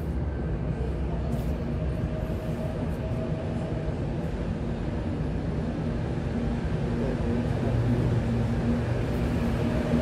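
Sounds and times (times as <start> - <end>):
faint train whine: 0.0 - 10.0
train rumbling: 0.0 - 10.0.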